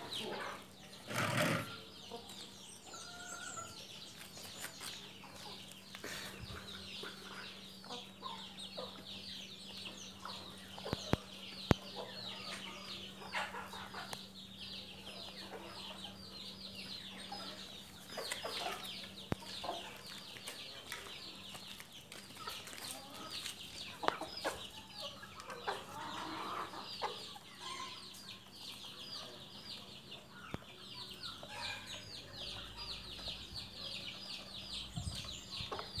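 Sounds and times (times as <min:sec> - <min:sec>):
hens clucking: 0:00.0 - 0:02.6, 0:20.8 - 0:30.6
chicks peeping: 0:00.0 - 0:36.0.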